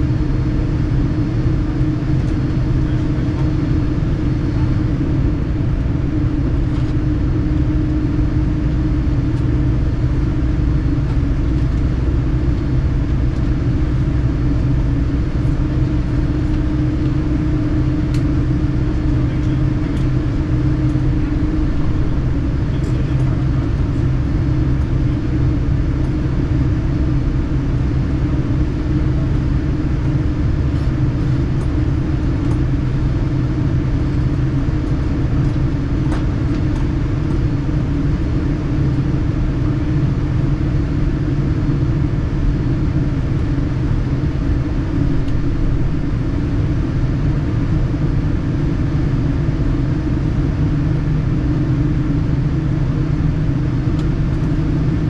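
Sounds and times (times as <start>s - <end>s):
low rumble in aircraft cabin: 0.0s - 55.0s
steady hum: 0.0s - 55.0s.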